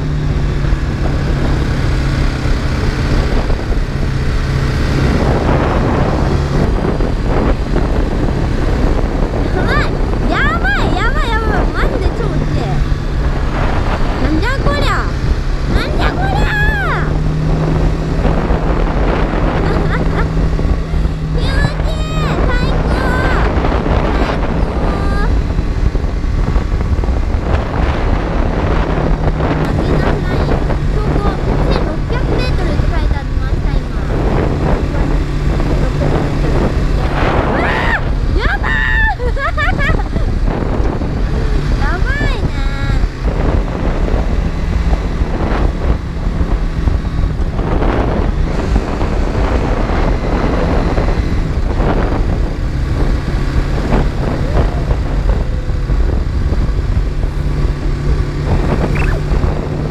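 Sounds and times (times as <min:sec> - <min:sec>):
motorcycle engine hum: 0:00.0 - 0:59.9
wind noise on microphone: 0:00.0 - 0:59.9.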